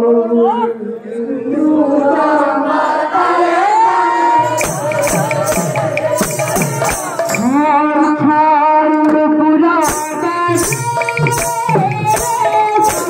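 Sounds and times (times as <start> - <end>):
women singing: 1.4 - 8.8
drum strokes: 4.4 - 7.8, 9.8 - 13.0.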